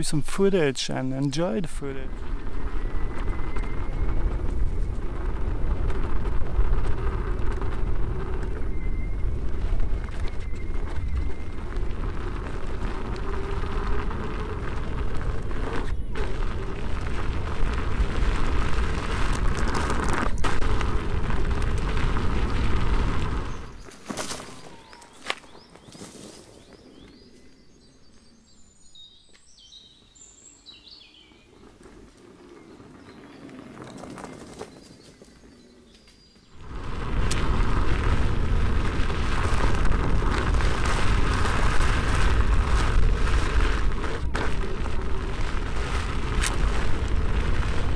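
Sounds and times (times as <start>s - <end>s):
tyre rumble on dirt trail: 0.0s - 47.9s
wind buffeting microphone: 1.4s - 23.8s, 36.5s - 47.9s.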